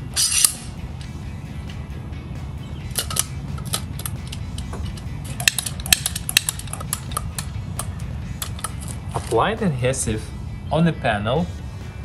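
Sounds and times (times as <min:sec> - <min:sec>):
caulking gun metal clicks: 0:02.9 - 0:09.4.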